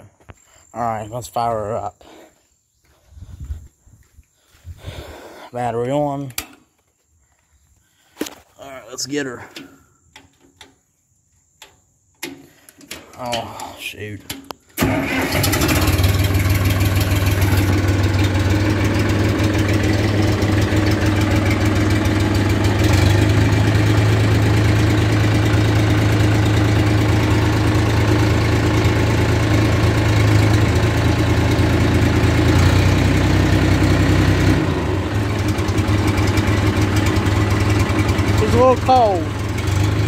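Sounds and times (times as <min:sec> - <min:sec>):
tractor engine idling: 0:12.2 - 0:40.0.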